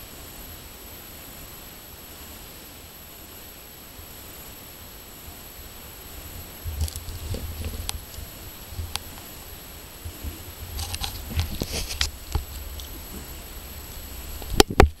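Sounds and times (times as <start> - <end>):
low rumble: 6.1 - 15.0
camera handling clicks and crackles: 10.8 - 12.9.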